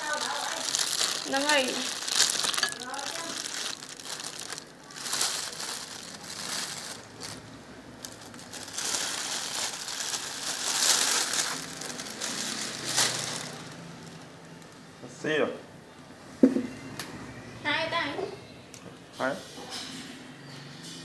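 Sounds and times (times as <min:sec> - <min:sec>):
plastic bag crinkling: 0:00.0 - 0:14.8.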